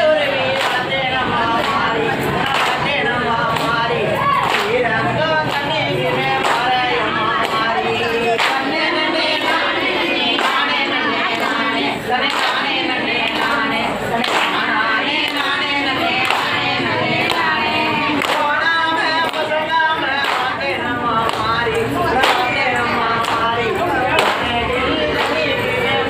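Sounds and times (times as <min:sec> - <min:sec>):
women singing folk song: 0:00.0 - 0:26.0
handclaps in time: 0:01.6 - 0:04.8, 0:14.2 - 0:14.7.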